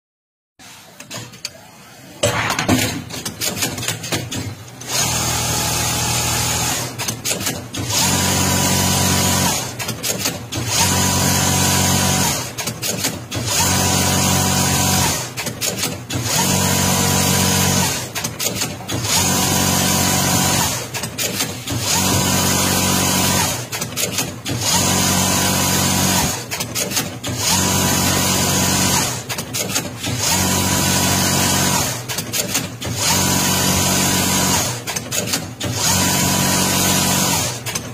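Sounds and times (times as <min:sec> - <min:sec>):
winding machine running: 0:04.8 - 0:37.9
machine clicking: 0:18.0 - 0:19.2, 0:20.8 - 0:22.0, 0:32.0 - 0:33.0.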